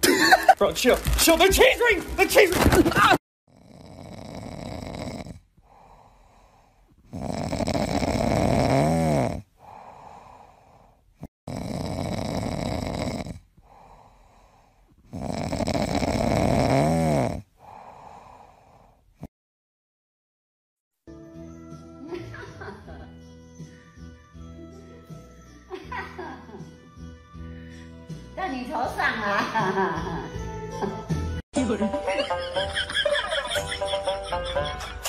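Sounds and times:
cat snoring: 3.5s - 19.3s.

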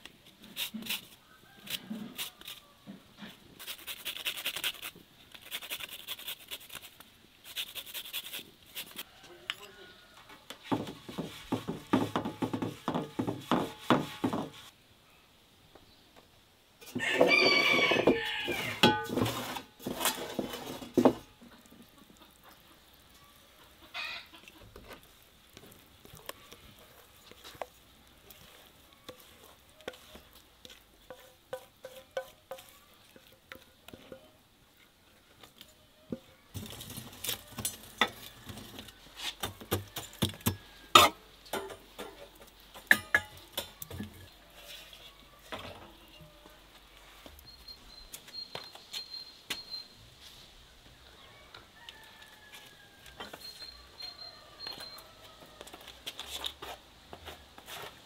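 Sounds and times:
rooster crowing: 1.2s - 2.9s, 9.0s - 10.4s, 16.9s - 18.9s, 23.9s - 24.4s, 38.0s - 41.2s, 51.1s - 56.0s.

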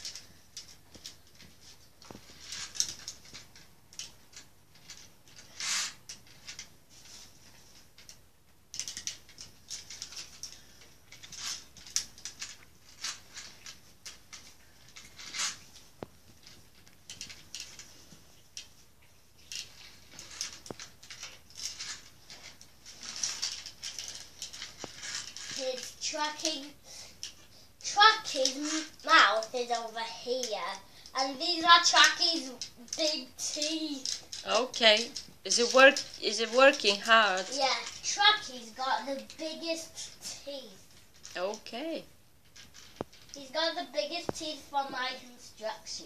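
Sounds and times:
toy parts clicking and rattling: 0.0s - 46.0s.

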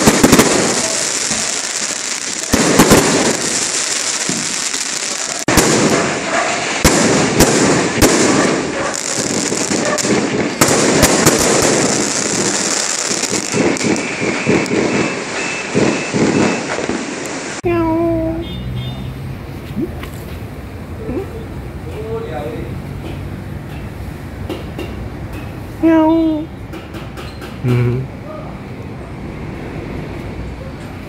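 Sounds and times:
fireworks bangs: 0.0s - 17.6s
fireworks crackle and hiss: 0.0s - 17.6s.

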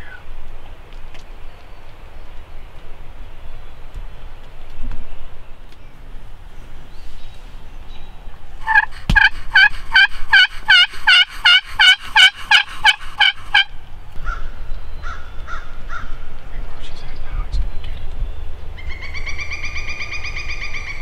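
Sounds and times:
turkey call yelps: 8.6s - 16.1s, 18.8s - 21.0s.

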